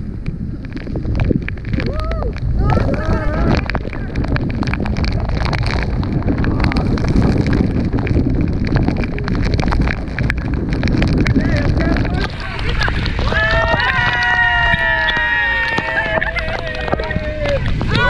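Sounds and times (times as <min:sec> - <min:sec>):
sharp crackles: 0:00.0 - 0:18.0
wind buffeting the microphone: 0:00.0 - 0:18.0
waterfall roaring: 0:08.5 - 0:18.0.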